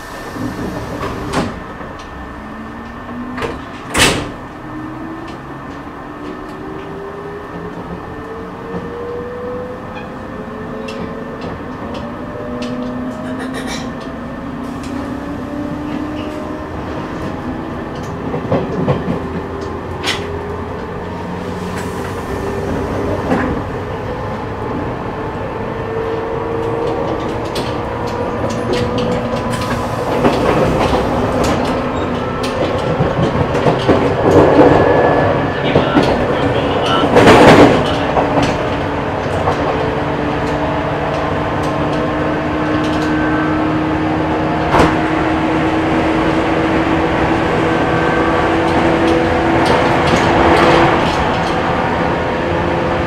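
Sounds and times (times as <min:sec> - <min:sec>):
train running noise: 0:00.0 - 0:53.0
wheels clicking over rail joints: 0:26.1 - 0:34.8.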